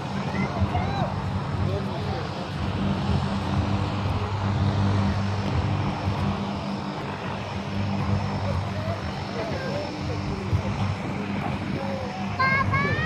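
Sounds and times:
low engine drone: 0.0s - 13.0s
noisy outdoor background: 0.0s - 13.0s.

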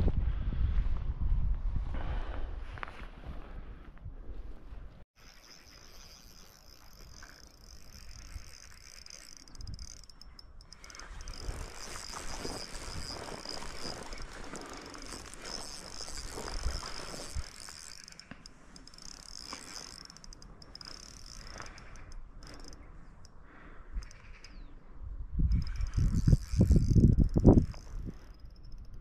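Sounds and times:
wind on microphone: 0.0s - 4.9s, 25.0s - 29.0s
fishing reel whirring: 5.2s - 24.8s, 25.4s - 29.0s.

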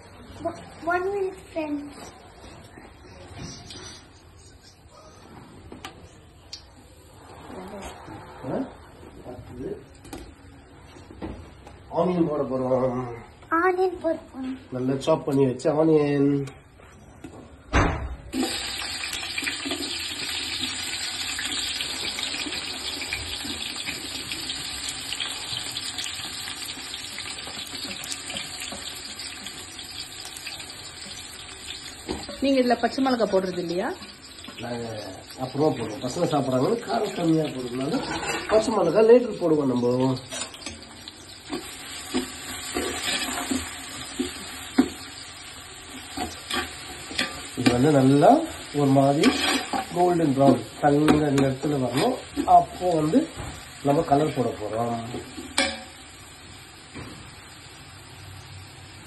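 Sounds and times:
onions sizzling in hot oil: 18.3s - 59.0s
spatula scraping metal pot: 37.8s - 38.7s, 41.5s - 44.9s, 46.0s - 47.8s, 49.1s - 50.0s.

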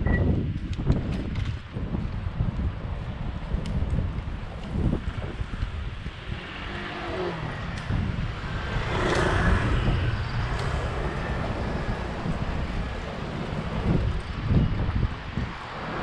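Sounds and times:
wind buffeting microphone: 0.0s - 16.0s
motor vehicle passing: 4.8s - 16.0s.

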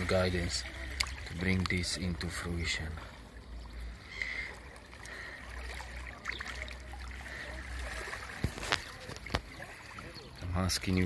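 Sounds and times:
seawater lapping over sand: 0.0s - 11.0s.

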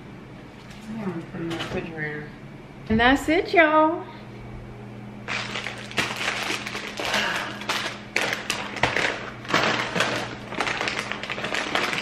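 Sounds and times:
grocery packaging crinkling: 5.2s - 12.0s.

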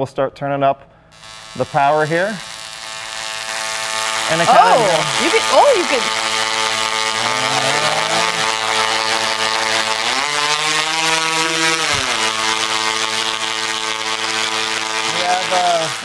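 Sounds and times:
tesla coil electric buzz: 1.1s - 16.0s.

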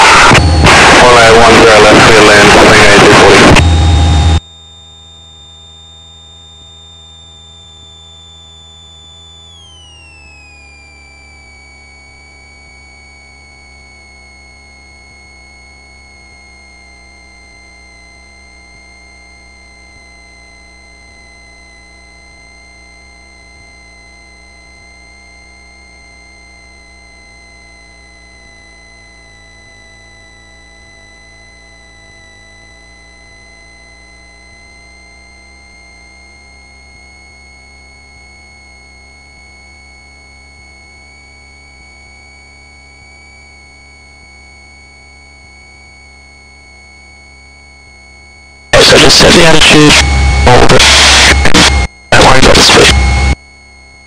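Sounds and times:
aircraft engine whine: 48.8s - 53.4s
loud noise cutting off: 48.8s - 53.4s.

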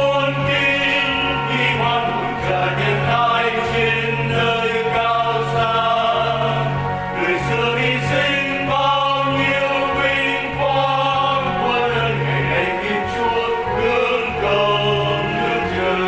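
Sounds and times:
choir singing a hymn: 0.0s - 16.0s
instrumental accompaniment: 0.0s - 16.0s.

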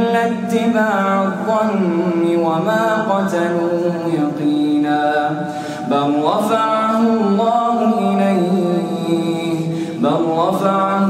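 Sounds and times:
man chanting melodically: 0.0s - 11.0s
breath: 5.4s - 5.9s, 9.7s - 10.0s.

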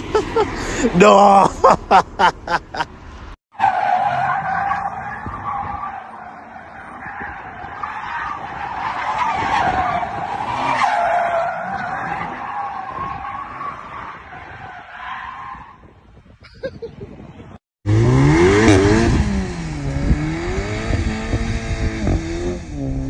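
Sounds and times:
car tyres squealing: 3.5s - 16.0s.

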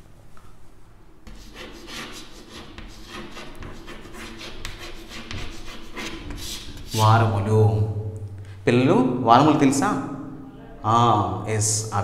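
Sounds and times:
chalk scratching on a chalkboard: 1.3s - 7.3s.

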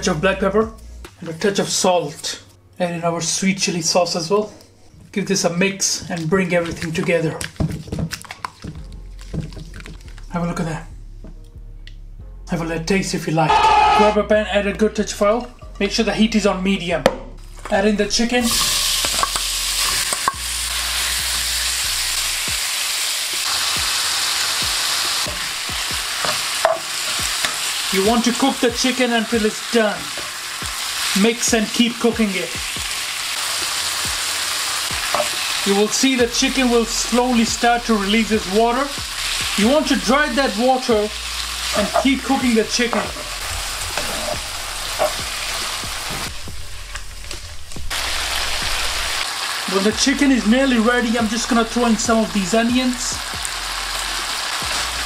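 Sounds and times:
chicken sizzling in hot oil: 18.4s - 50.2s, 51.3s - 55.0s.

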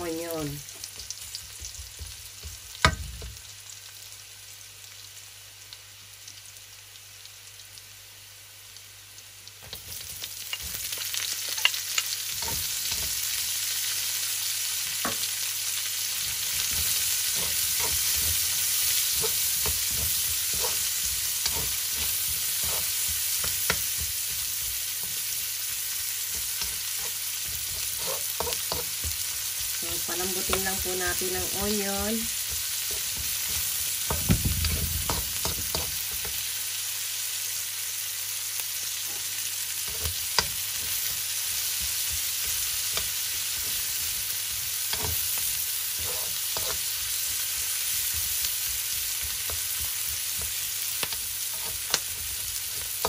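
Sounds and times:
garlic and onion sizzling in oil: 0.0s - 53.0s
utensil scraping wok: 9.6s - 13.6s, 16.0s - 36.5s, 38.9s - 53.0s.

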